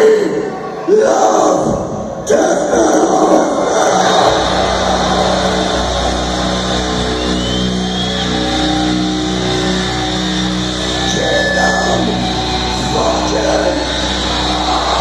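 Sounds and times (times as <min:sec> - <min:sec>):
metal band playing live: 0:02.8 - 0:15.0
low drone: 0:03.1 - 0:15.0.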